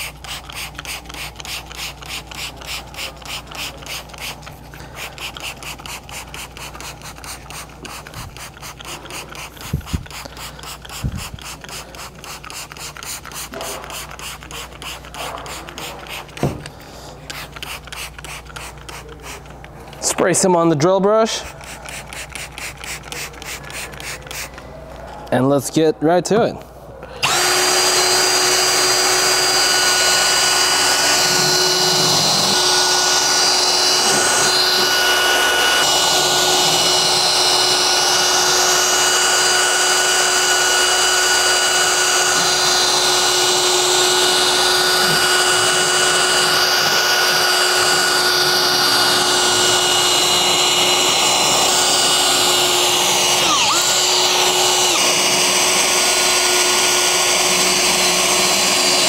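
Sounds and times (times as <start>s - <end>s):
brush scrubbing carpet: 0.0s - 16.4s
cordless drill motor hum: 27.2s - 59.0s.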